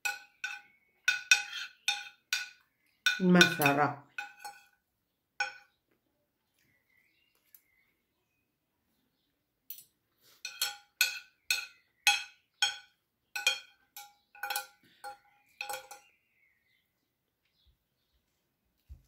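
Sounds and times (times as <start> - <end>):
cutlery clinking on a plate: 0.0 - 4.8, 5.4 - 5.8, 9.7 - 16.1.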